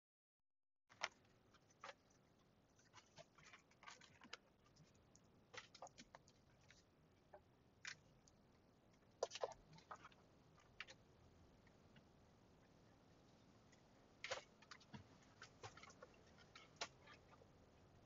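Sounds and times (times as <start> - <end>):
wallet and cards clicks and rustles: 2.8 - 6.8.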